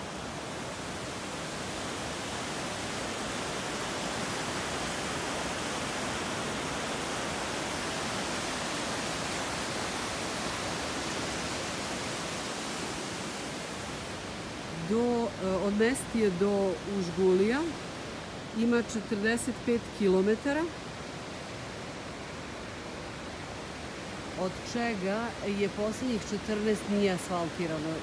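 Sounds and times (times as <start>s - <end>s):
river rushing: 0.0s - 28.0s.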